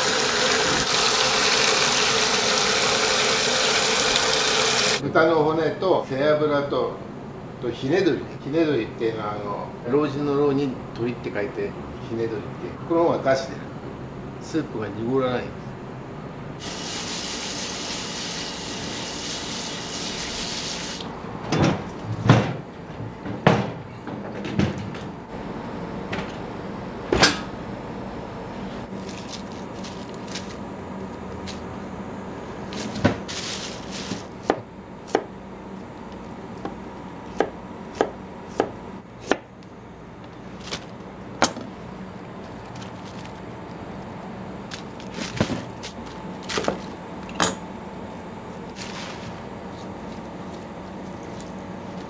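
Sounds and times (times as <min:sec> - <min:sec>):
steady low hum: 0:24.9 - 0:52.0.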